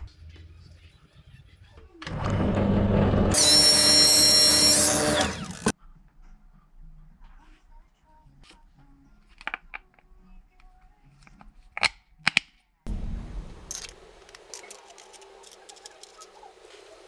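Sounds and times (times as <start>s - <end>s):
small metal parts clicking: 13.7s - 16.4s.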